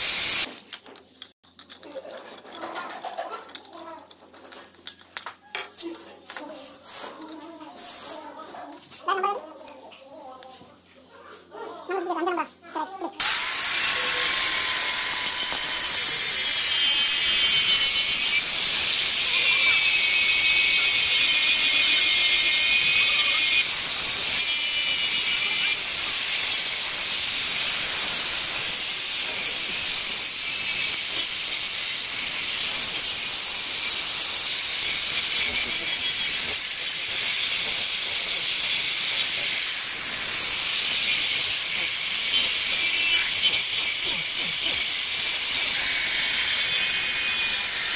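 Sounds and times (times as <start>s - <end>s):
angle grinder polishing stone: 0.0s - 0.5s, 13.2s - 47.9s.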